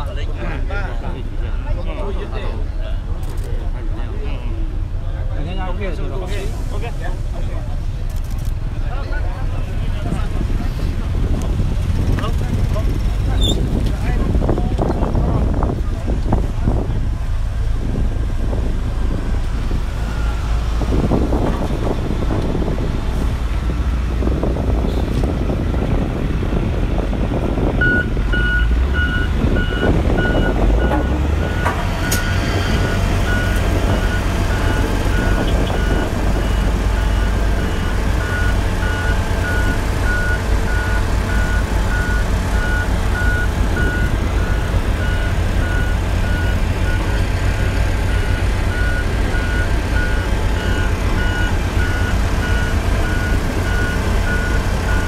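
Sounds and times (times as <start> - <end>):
diesel engine rumbling: 0.0 - 55.0
reversing alarm beeping: 27.8 - 47.2.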